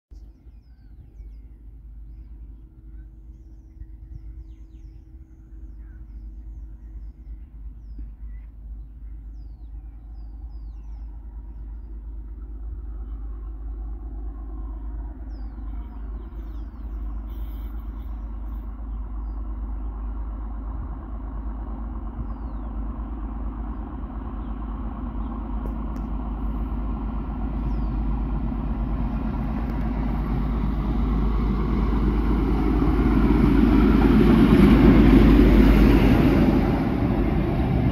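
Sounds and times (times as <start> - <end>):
diesel train engine rumble: 0.1 - 37.9
train wheels on rails: 16.0 - 37.9.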